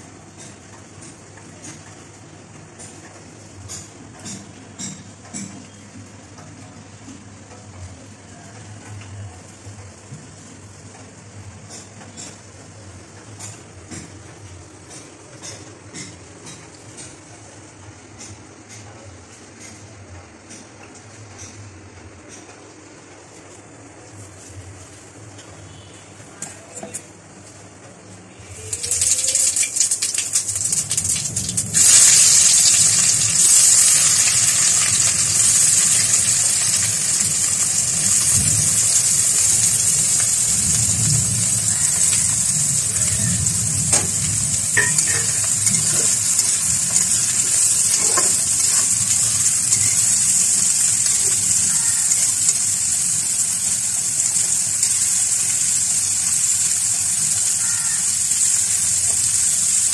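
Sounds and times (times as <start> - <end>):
onions sizzling in hot oil: 28.4 - 59.9.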